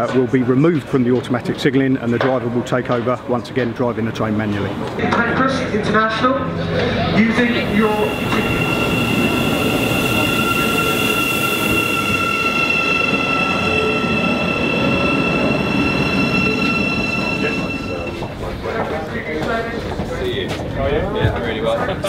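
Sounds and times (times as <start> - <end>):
train running rumble: 5.9 - 22.0
high electric whine: 7.1 - 18.7.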